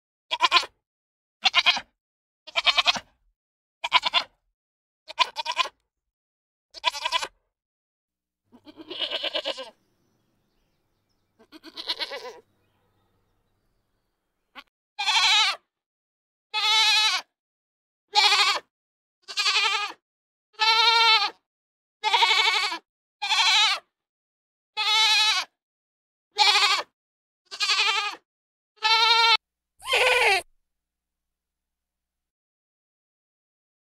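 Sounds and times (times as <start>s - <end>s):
goats bleating: 0.3s - 0.7s, 2.5s - 3.0s, 3.8s - 4.4s, 5.1s - 5.8s, 6.8s - 7.4s, 8.5s - 9.8s, 11.4s - 12.5s, 14.5s - 15.6s, 16.6s - 17.2s, 18.1s - 20.0s, 20.6s - 21.4s, 22.0s - 23.8s, 24.8s - 25.5s, 26.4s - 26.9s, 27.5s - 28.2s, 28.8s - 30.4s.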